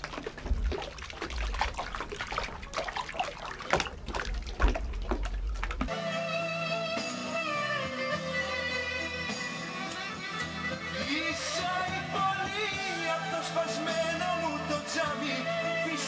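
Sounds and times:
water splashing and dripping: 0:00.0 - 0:05.9
instrumental music: 0:05.9 - 0:16.0.

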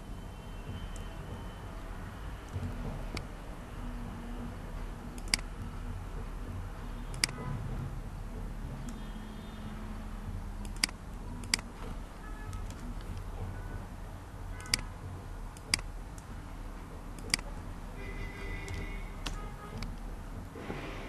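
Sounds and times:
computer hum: 0:00.0 - 0:21.0
computer mouse clicks: 0:02.5 - 0:03.3, 0:05.1 - 0:05.7, 0:07.1 - 0:07.5, 0:10.6 - 0:13.3, 0:14.6 - 0:14.9, 0:15.5 - 0:16.3, 0:17.1 - 0:17.6, 0:18.6 - 0:20.1.

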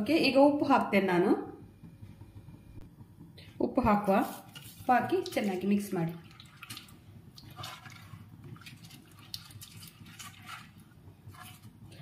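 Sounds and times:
small splashes: 0:06.2 - 0:11.7
hand squelching thick liquid: 0:06.2 - 0:12.0.

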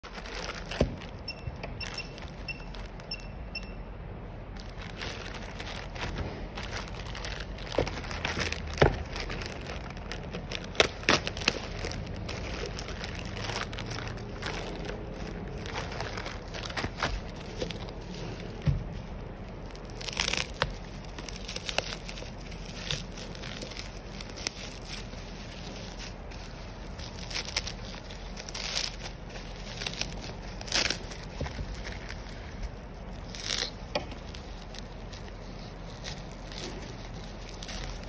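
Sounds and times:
plastic packaging crinkling: 0:00.0 - 0:03.5, 0:04.5 - 0:38.0.

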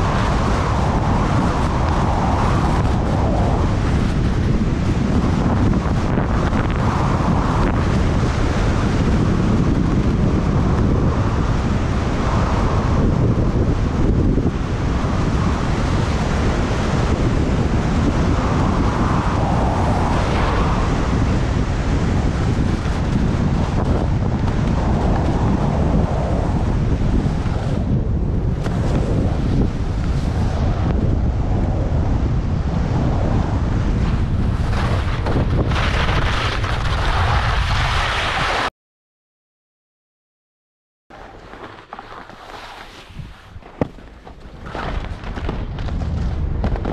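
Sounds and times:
skis sliding on snow: 0:00.0 - 0:09.6, 0:18.2 - 0:27.8, 0:28.5 - 0:30.8, 0:34.0 - 0:38.7, 0:41.1 - 0:46.9
wind buffeting microphone: 0:00.0 - 0:38.7, 0:41.1 - 0:46.9
skis hissing on packed snow: 0:37.1 - 0:38.7, 0:41.3 - 0:43.6.

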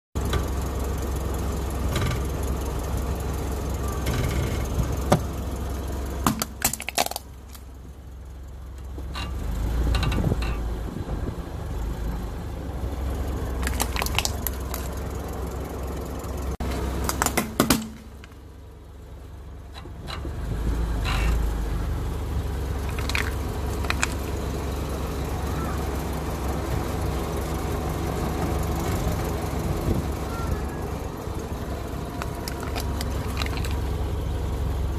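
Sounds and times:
car engine running: 0:00.2 - 0:34.9
plastic cracking under tyre: 0:06.2 - 0:07.7, 0:13.6 - 0:15.0, 0:17.0 - 0:18.4, 0:22.8 - 0:24.3, 0:32.1 - 0:34.0
small plastic clicks: 0:22.9 - 0:24.2.

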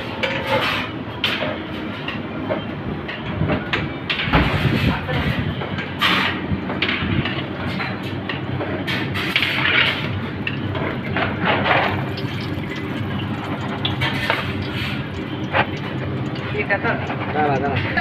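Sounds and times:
kitchen hum: 0:06.0 - 0:18.0.

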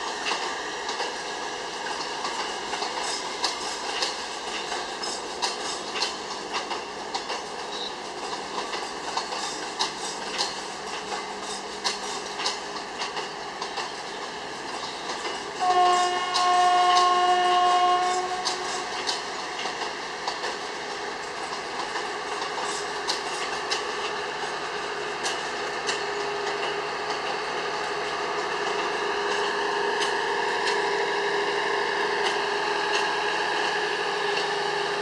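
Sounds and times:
train wheels clicking over rail joints: 0:00.0 - 0:35.0
train horn blast: 0:15.6 - 0:18.9.

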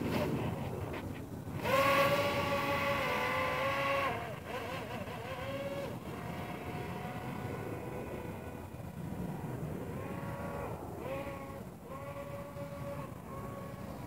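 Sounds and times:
model plane motor whining: 0:00.0 - 0:14.0.

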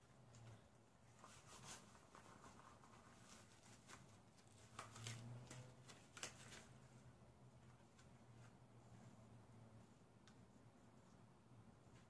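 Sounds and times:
faint low hum: 0:00.0 - 0:12.0
rubber gloves rustling: 0:00.0 - 0:12.0.

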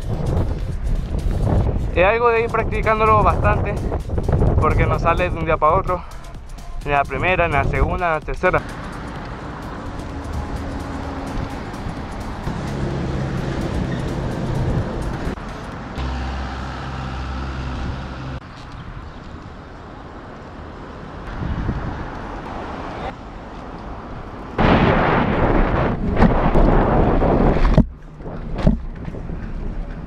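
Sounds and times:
wind buffeting microphone: 0:00.0 - 0:16.0, 0:21.2 - 0:30.0
low background music: 0:00.0 - 0:18.4.

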